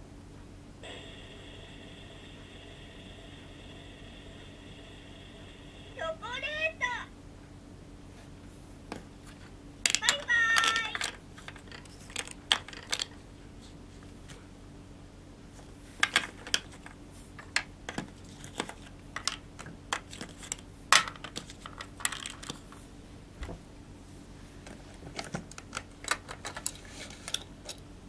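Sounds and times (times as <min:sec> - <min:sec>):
plastic parts clattering: 0:09.3 - 0:13.2, 0:16.0 - 0:22.6, 0:25.1 - 0:27.8.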